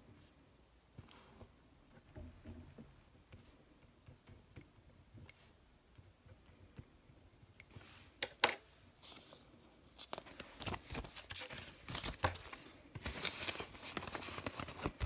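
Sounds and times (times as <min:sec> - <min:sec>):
plastic banknotes rustling: 0:09.0 - 0:15.0.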